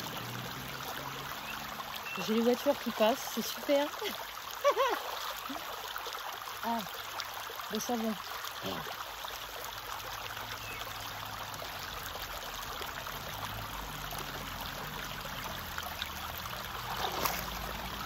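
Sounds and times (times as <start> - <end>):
river water over stones: 0.0 - 18.0
foot splashing into water: 16.6 - 18.0.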